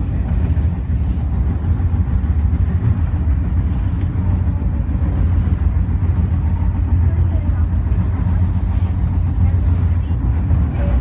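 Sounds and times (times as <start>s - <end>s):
train rumbling on rails: 0.0s - 11.0s.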